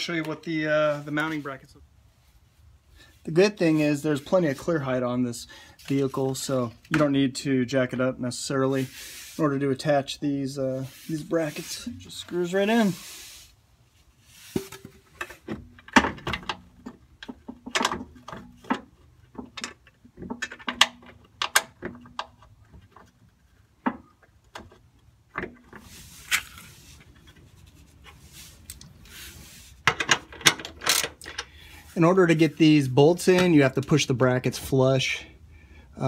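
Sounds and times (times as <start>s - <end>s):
metal bolts clicking and tapping: 15.2s - 23.1s.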